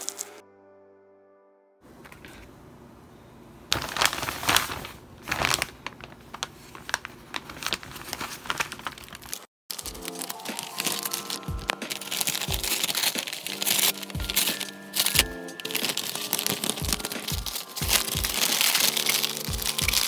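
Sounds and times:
background music: 0.0 - 1.8, 9.7 - 20.0
plastic and paper crinkling: 3.7 - 20.0.

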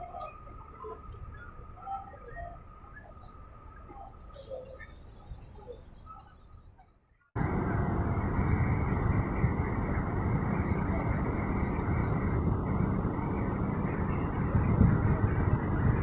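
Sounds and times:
vehicle road and wind noise: 7.4 - 16.0.

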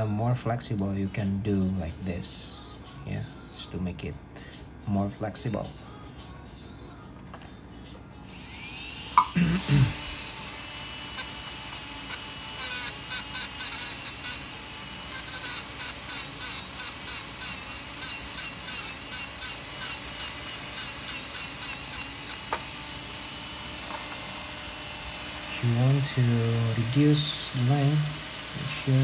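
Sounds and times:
dental handpiece whining: 8.2 - 29.0
disc rubbing on tooth: 12.0 - 22.7.

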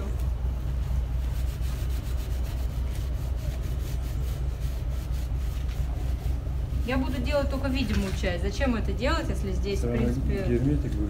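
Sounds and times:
steady low hum: 0.0 - 11.0
sandpaper rubbing on metal: 0.9 - 7.9.

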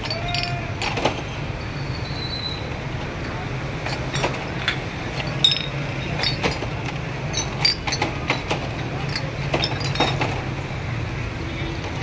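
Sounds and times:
glass bottles clinking: 0.0 - 1.3, 3.2 - 10.5.

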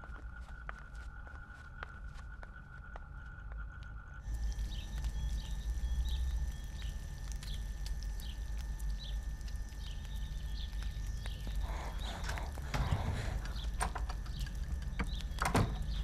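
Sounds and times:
low hum: 0.0 - 16.0
birds chirping: 0.1 - 16.0.

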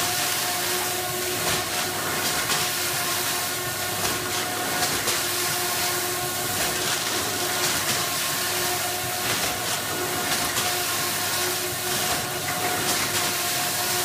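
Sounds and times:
bread-bagging machine hiss: 0.0 - 14.0
machine clicks and clatter: 11.9 - 13.4.

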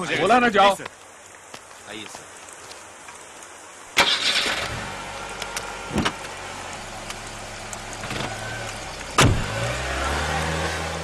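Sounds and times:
heavy rain: 0.0 - 11.0
car engine idling: 4.0 - 11.0
car door thumping shut: 5.9 - 6.2, 9.2 - 9.5.

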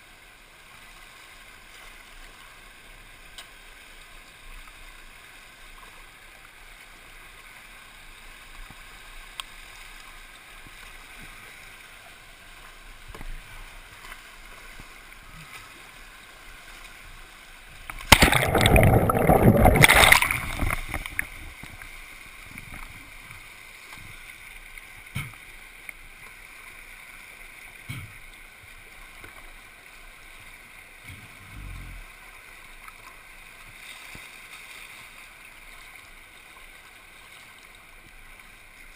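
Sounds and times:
floodwater rushing through rapids: 0.0 - 38.9
underwater churning rush: 18.0 - 22.0.

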